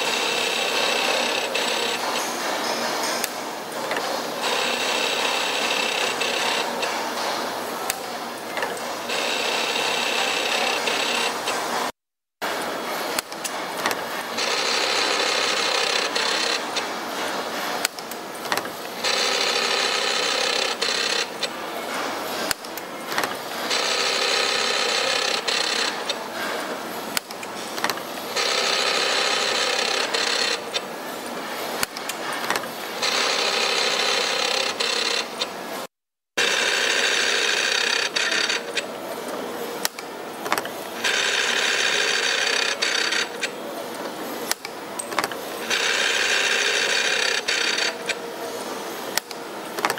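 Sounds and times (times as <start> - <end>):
spring-forming machine whining: 0.0 - 35.8, 36.4 - 49.9
tool slides clicking and rattling: 17.2 - 18.8, 39.8 - 41.3, 42.9 - 48.2, 49.1 - 49.9.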